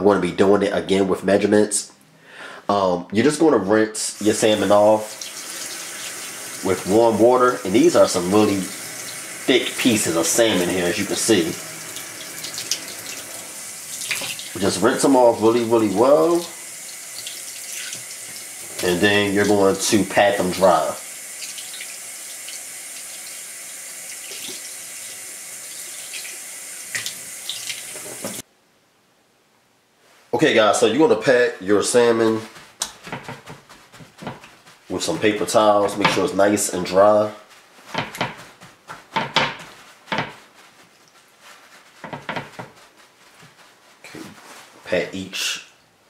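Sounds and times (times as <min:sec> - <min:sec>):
paper towel dabbing fish: 0:04.2 - 0:23.6, 0:31.8 - 0:45.2.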